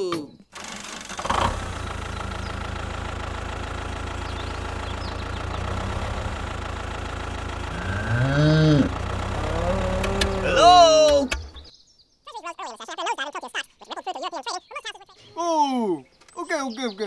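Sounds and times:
engine idling: 0:00.5 - 0:11.7
cow mooing: 0:07.7 - 0:10.8.

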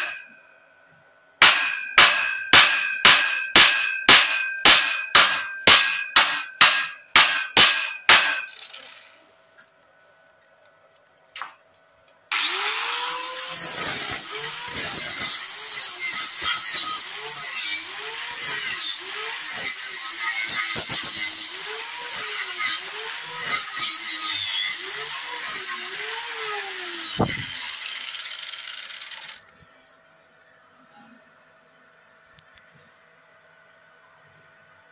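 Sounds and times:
hammer striking steel: 0:00.0 - 0:00.5, 0:01.4 - 0:09.1
angle grinder grinding metal: 0:12.3 - 0:29.5.

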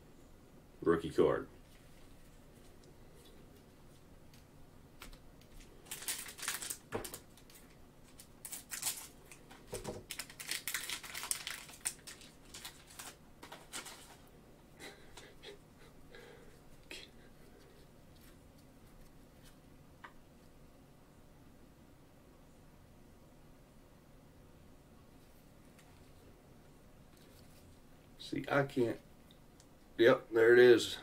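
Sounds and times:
foil wrapper crinkling and tearing: 0:05.4 - 0:14.3.

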